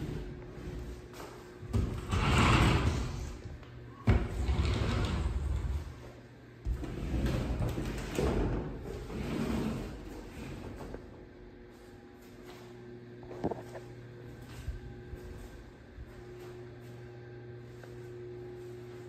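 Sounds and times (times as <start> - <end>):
sliding doors rolling on track: 1.9 - 3.4, 4.3 - 6.0.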